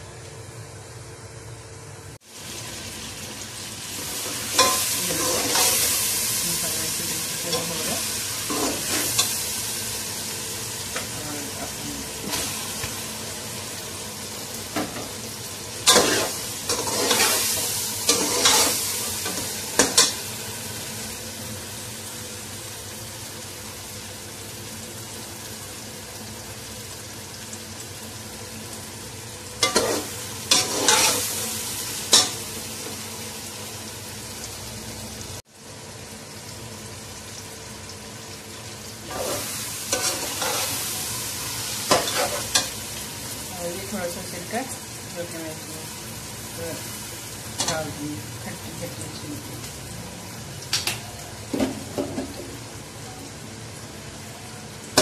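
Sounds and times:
food sizzling in oil: 2.1 - 55.0.

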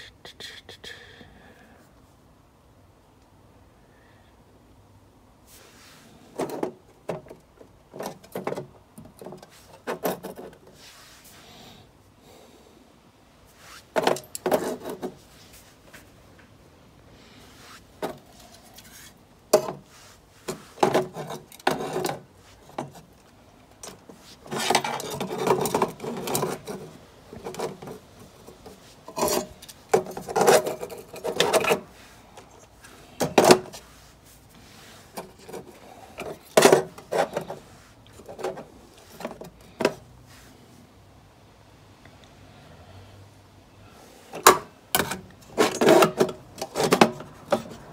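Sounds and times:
modules scraping in metal box: 18.4 - 23.0, 24.1 - 28.1, 29.0 - 32.1, 35.0 - 39.4, 45.4 - 47.9.

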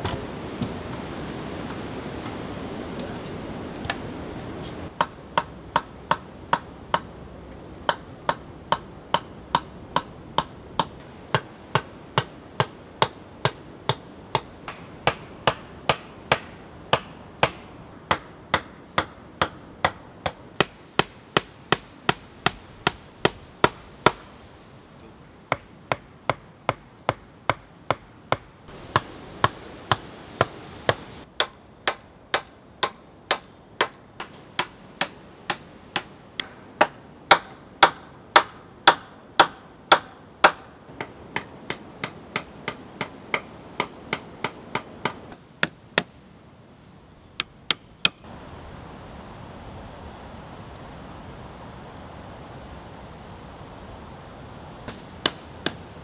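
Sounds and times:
hammer striking wooden poles: 5.0 - 7.1, 7.8 - 24.3, 25.5 - 46.1, 47.4 - 48.3, 54.9 - 55.8.

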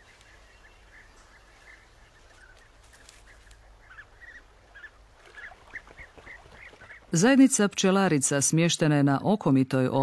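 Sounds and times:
birds calling: 0.0 - 7.5.

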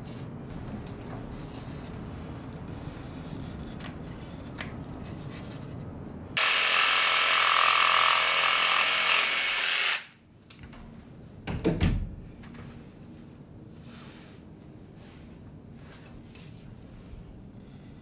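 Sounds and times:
power tool buzzing: 6.4 - 10.2.

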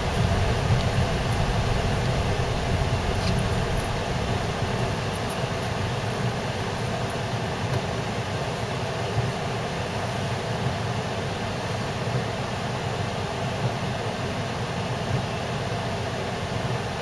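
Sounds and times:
car engine and tyre noise on snow: 0.0 - 6.1.

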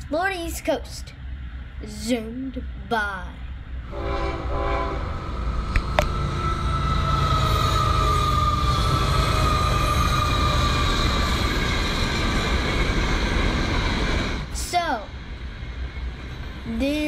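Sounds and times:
freight train rumble and rattle: 0.0 - 17.0
train wheel squeal: 4.0 - 14.4.

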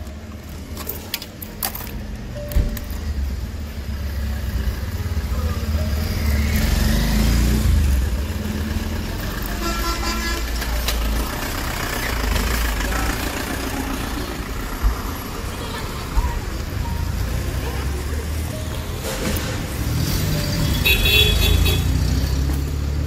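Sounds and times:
motorcycle engine rumble: 0.0 - 23.0
vehicle horn: 9.5 - 10.6, 20.5 - 22.0.

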